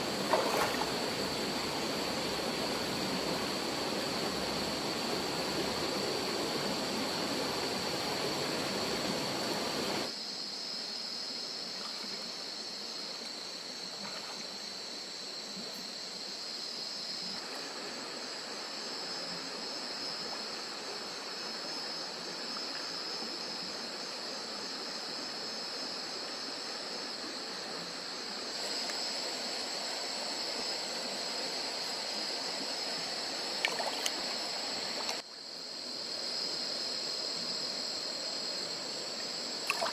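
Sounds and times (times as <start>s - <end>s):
stream water trickling: 0.0s - 9.6s, 28.1s - 35.4s, 37.5s - 39.9s
night insects chirring: 0.0s - 39.9s.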